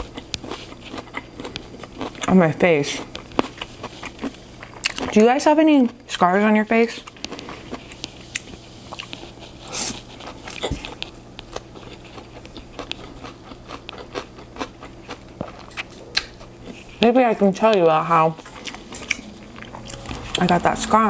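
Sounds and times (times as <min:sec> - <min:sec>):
chewing with wet mouth clicks: 0:00.0 - 0:02.3, 0:03.0 - 0:05.2, 0:07.0 - 0:09.5, 0:10.1 - 0:16.5, 0:18.4 - 0:20.4.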